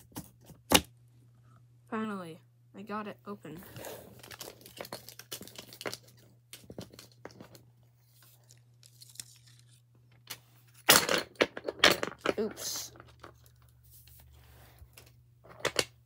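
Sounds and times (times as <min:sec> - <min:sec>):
plastic packaging crackling: 0:04.1 - 0:07.2.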